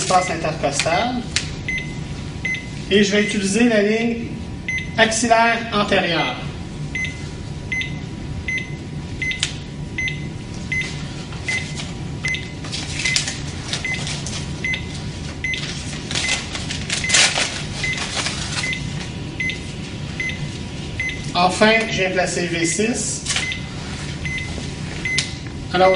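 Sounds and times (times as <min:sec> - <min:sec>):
cardiac monitor beeping: 0:01.6 - 0:03.8, 0:04.5 - 0:21.6, 0:23.4 - 0:25.9
papery rustling: 0:12.6 - 0:19.9.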